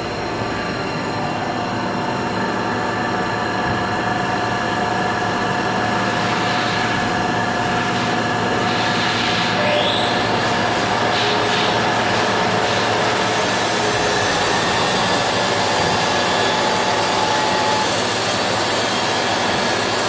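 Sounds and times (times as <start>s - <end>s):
milling machine whine: 0.0s - 20.0s
machine hiss: 4.2s - 20.0s.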